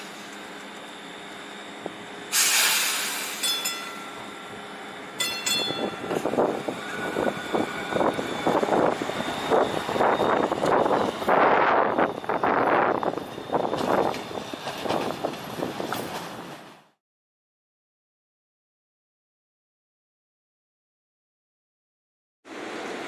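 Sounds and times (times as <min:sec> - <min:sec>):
streetcar rumbling along track: 0:00.0 - 0:17.0, 0:22.5 - 0:23.0
air hiss burst: 0:02.3 - 0:03.4.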